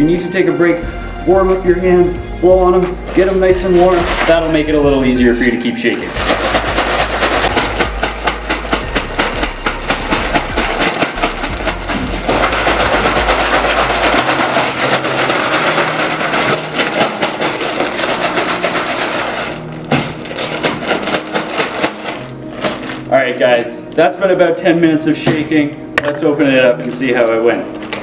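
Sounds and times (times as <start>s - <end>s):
ice cubes rattling in plastic bag: 2.6s - 5.4s, 6.0s - 24.2s, 26.8s - 28.0s.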